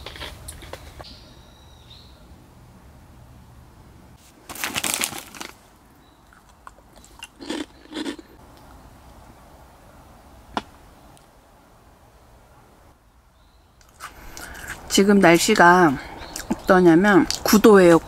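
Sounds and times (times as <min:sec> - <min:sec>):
crackers crunching: 0:00.0 - 0:01.0, 0:04.2 - 0:08.7, 0:13.8 - 0:14.9.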